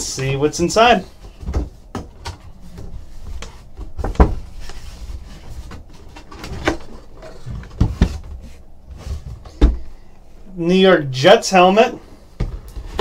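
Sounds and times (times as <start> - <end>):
cardboard flaps rustling and scraping: 0.9 - 9.9.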